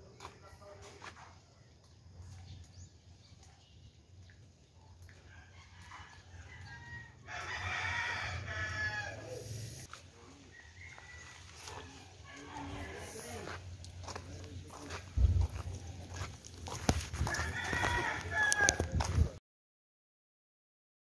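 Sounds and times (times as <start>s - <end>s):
rooster crowing: 5.1s - 9.5s, 10.5s - 13.6s, 15.5s - 19.2s
faint rooster calls: 5.1s - 9.7s, 10.4s - 13.6s, 17.2s - 19.1s.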